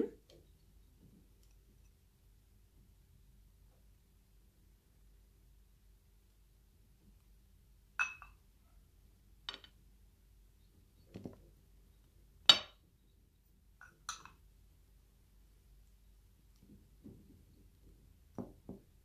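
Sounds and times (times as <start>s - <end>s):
glass bowls clinking: 8.0s - 8.4s, 13.8s - 14.4s.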